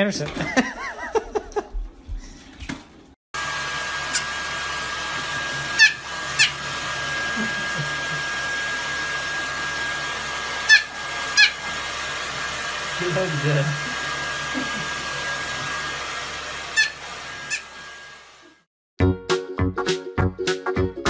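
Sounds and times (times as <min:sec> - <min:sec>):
hair dryer blowing: 0:03.4 - 0:18.7
puppy yipping: 0:05.8 - 0:06.6, 0:10.6 - 0:11.6, 0:16.8 - 0:17.7.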